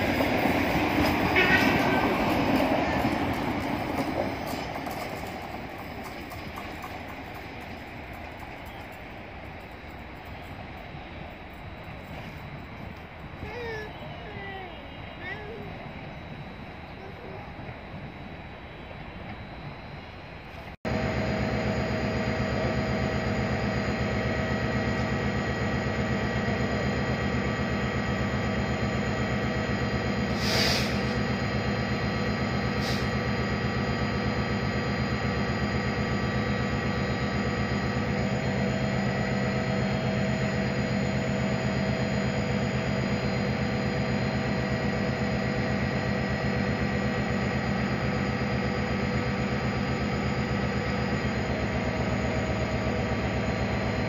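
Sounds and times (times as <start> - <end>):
diesel locomotive idling: 0.0 - 54.0
short air hiss: 30.3 - 31.2, 32.8 - 33.1.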